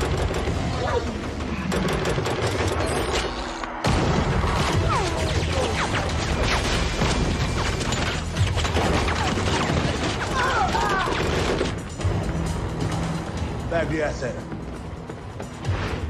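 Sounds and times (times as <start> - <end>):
rapid gunfire: 0.0 - 12.0.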